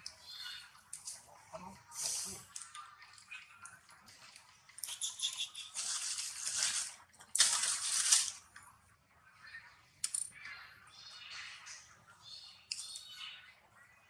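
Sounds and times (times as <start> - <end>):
rustling crackling noise: 0.8 - 9.2.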